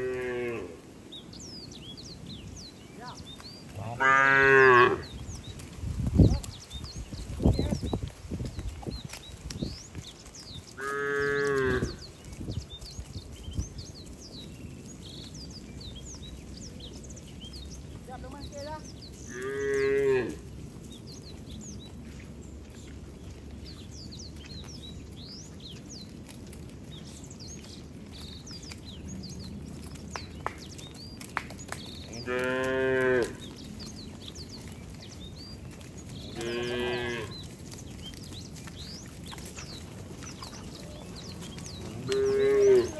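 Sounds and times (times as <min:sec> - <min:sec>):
cattle mooing: 0:00.0 - 0:00.8, 0:03.8 - 0:05.0, 0:10.8 - 0:12.0, 0:19.3 - 0:20.4, 0:32.2 - 0:33.4, 0:36.3 - 0:37.4, 0:41.9 - 0:42.9.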